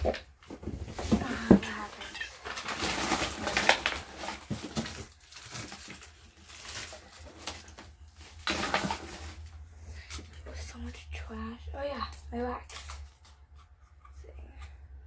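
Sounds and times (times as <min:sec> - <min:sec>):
trash rustling and crunching: 0:00.0 - 0:09.7.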